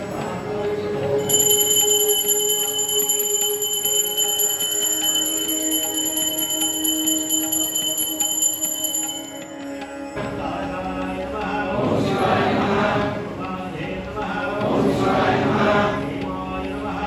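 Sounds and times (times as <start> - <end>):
temple bell ringing: 0.0 - 10.5
men chanting: 10.1 - 17.0.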